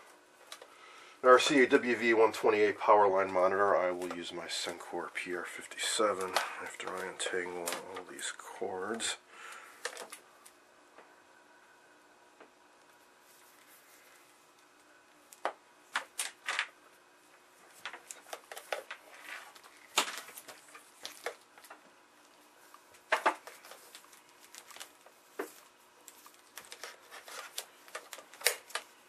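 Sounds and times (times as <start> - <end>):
cables and plugs clicking on metal: 26.6 - 28.9.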